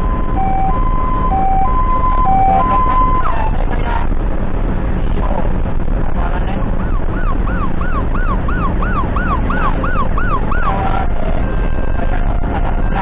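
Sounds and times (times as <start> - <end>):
ambulance siren: 0.0 - 3.8, 6.7 - 13.0
engine and road noise rumble: 0.0 - 13.0.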